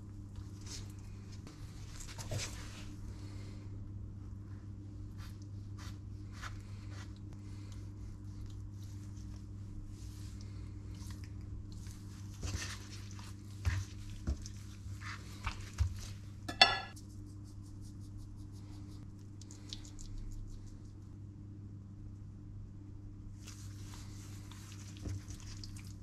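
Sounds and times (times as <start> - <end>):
low steady hum: 0.0 - 26.0
hands handling raw meat on board: 11.0 - 16.3
knife clinking on ceramic plate: 16.5 - 17.0.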